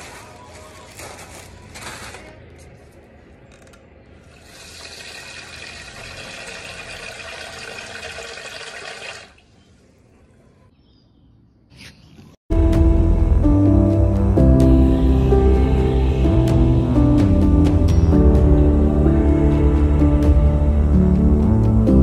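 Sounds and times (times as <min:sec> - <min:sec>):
plastic bag rustling: 0:00.0 - 0:02.9
tap water running into bowl: 0:04.4 - 0:09.4.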